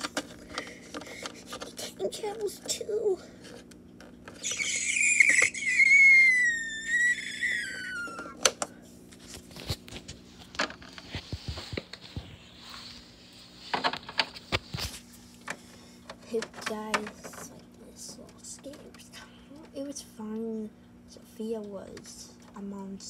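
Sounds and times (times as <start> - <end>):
high-pitched vocal squeal: 4.4 - 8.4
toy figures clicking and rustling: 15.5 - 19.1.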